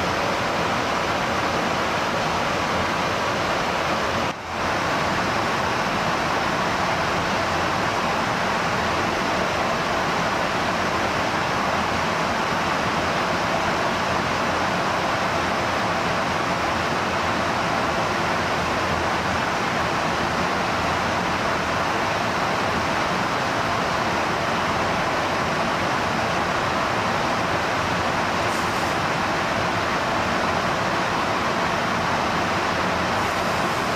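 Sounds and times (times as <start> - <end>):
rushing airflow: 27.8 - 29.6.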